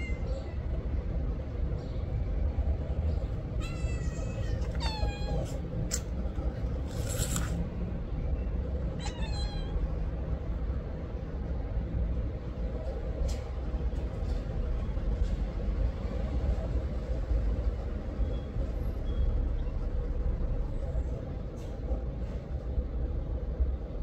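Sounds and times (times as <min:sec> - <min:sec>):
cat meowing: 0:00.0 - 0:00.5, 0:03.5 - 0:06.0, 0:08.9 - 0:09.9
steady low rumble: 0:00.0 - 0:24.0.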